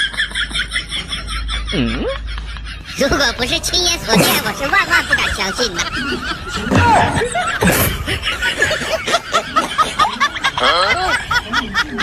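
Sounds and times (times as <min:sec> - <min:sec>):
person chuckling and snickering: 0:01.0 - 0:11.4.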